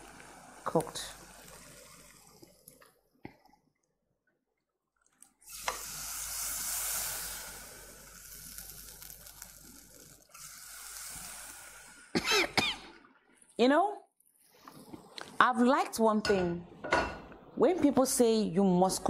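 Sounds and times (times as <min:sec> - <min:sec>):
hiss of running liquid: 0:05.4 - 0:12.4.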